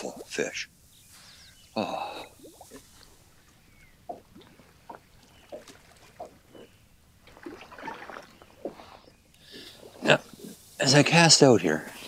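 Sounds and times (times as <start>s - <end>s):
water splashing: 1.8s - 11.2s.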